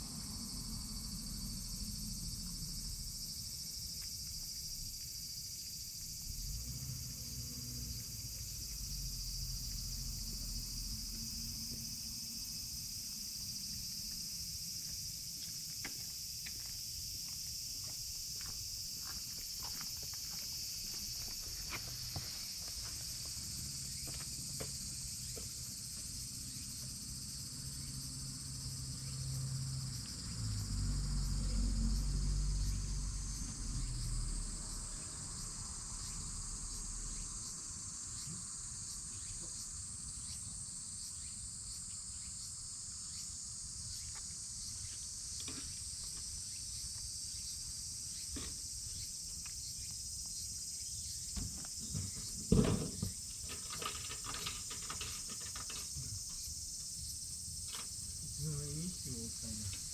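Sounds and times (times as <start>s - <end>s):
low rumble: 0.0s - 3.3s
insects chirring: 0.0s - 59.9s.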